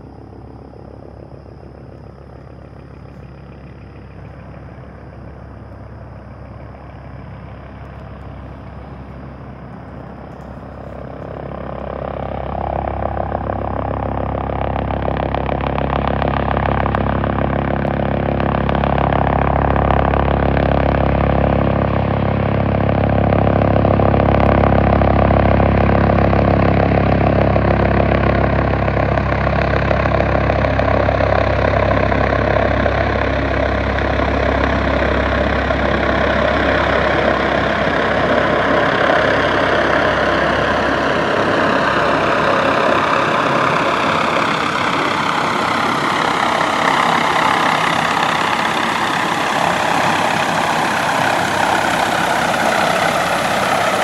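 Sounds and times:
deep low rumble: 0.0s - 54.0s
helicopter rotor and turbine: 0.0s - 54.0s
turbine whine: 0.0s - 54.0s.

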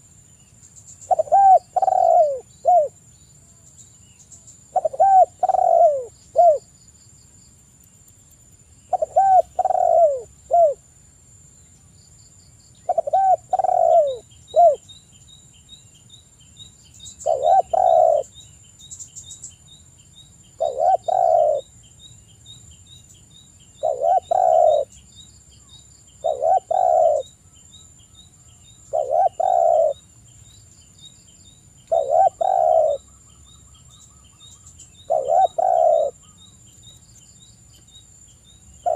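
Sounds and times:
dove cooing: 1.1s - 3.0s, 4.7s - 6.7s, 8.9s - 10.8s, 12.8s - 14.8s, 17.2s - 18.3s, 20.6s - 21.7s, 23.8s - 24.9s, 26.2s - 27.3s, 28.9s - 30.0s, 31.9s - 33.1s, 35.0s - 36.3s.

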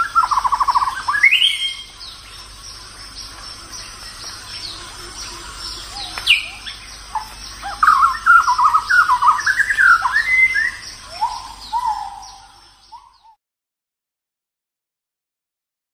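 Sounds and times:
bird warbling song: 0.0s - 13.4s
birds chirping and singing: 0.0s - 13.4s.

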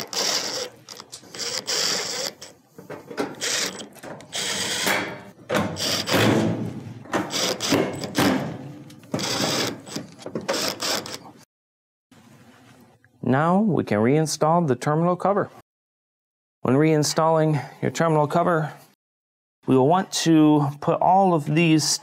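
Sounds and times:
impact driver hammering screws: 3.4s - 6.5s, 7.2s - 8.4s, 9.1s - 11.2s.

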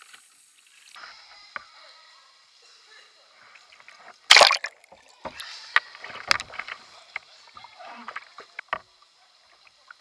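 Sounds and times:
water splashing around a kayak: 4.3s - 5.4s.

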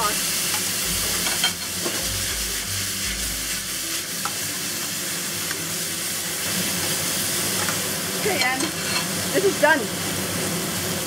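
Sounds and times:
food sizzling in a wok: 0.0s - 11.0s
wok bumping: 0.9s - 2.4s, 7.5s - 9.2s.

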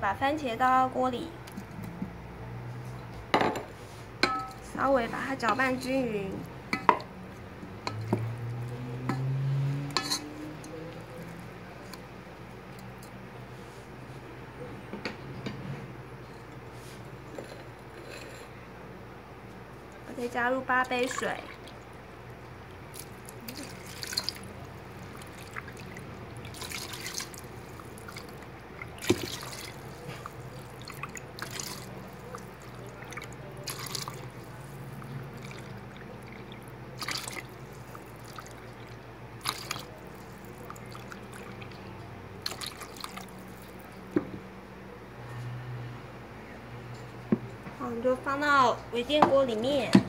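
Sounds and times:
water dripping: 20.8s - 44.0s
water pouring and splashing: 20.9s - 22.0s, 22.9s - 44.1s.

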